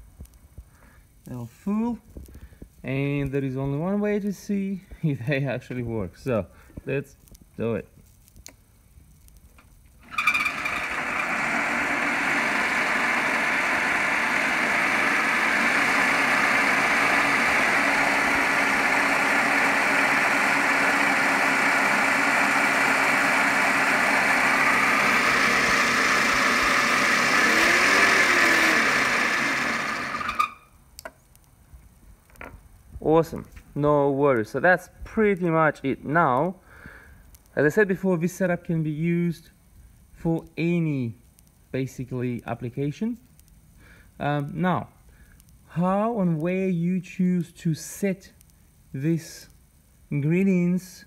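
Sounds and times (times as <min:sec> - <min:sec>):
electric motor whining: 0:10.0 - 0:30.6.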